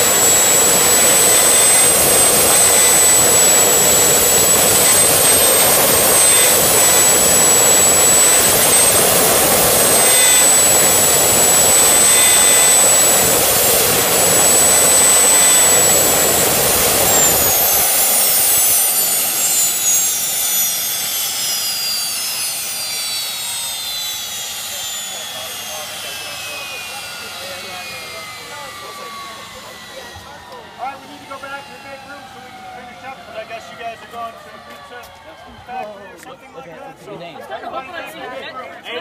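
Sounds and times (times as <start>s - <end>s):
jet engine whining: 0.0s - 39.0s.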